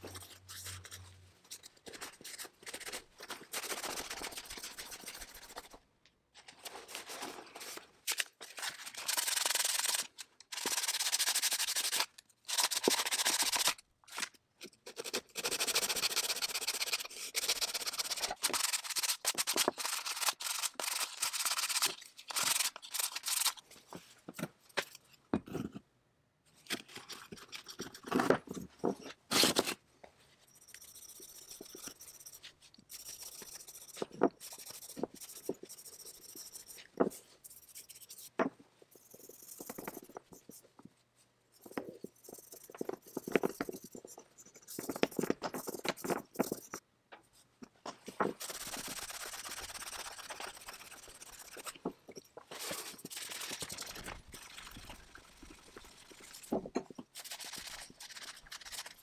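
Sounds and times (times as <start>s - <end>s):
sandpaper scraping wood: 14.9s - 23.6s, 48.4s - 51.8s.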